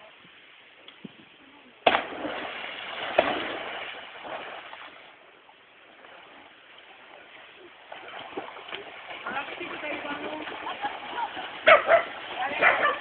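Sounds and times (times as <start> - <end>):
body splashing into water: 1.8 - 5.1, 7.8 - 12.6.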